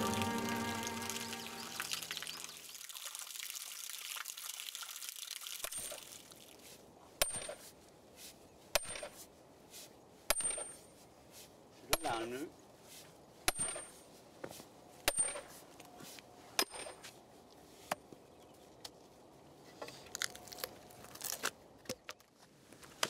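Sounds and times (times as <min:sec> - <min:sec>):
music: 0:00.0 - 0:02.1
water dripping with high ping: 0:00.0 - 0:06.2.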